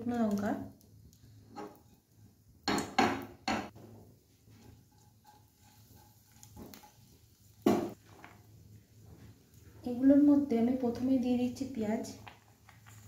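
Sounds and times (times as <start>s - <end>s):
spatula knocking against a pan: 2.6s - 3.8s.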